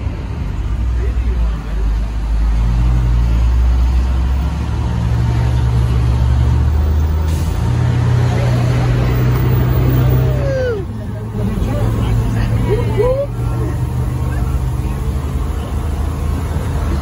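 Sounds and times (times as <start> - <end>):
road noise: 0.0 - 17.0
vehicle engine running: 0.0 - 17.0.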